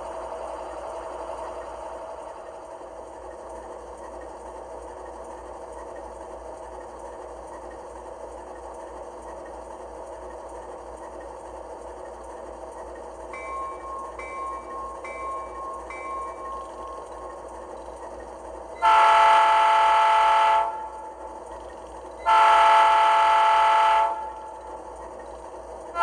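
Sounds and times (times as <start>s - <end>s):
diesel locomotive idling: 0.0s - 26.0s
locomotive bell ringing: 13.2s - 21.3s.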